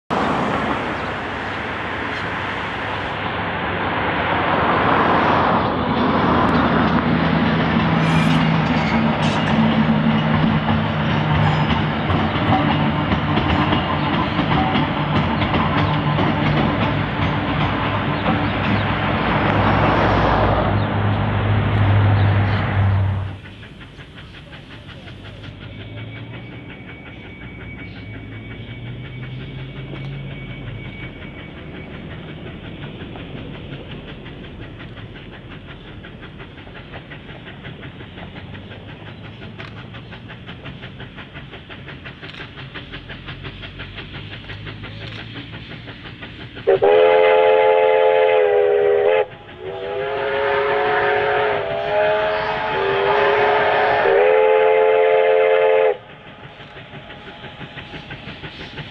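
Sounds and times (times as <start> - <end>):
steam locomotive chuffing: 0.1 - 58.9
multi-tone steam whistle: 7.9 - 11.7, 46.6 - 56.1.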